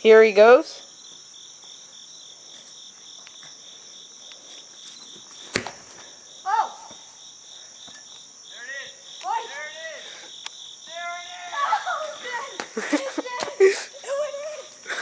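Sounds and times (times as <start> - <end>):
insect chorus chirring: 0.0 - 15.0
ball kicked thump: 5.5 - 5.9
person shouting: 6.5 - 6.9, 8.6 - 10.1, 10.9 - 12.6.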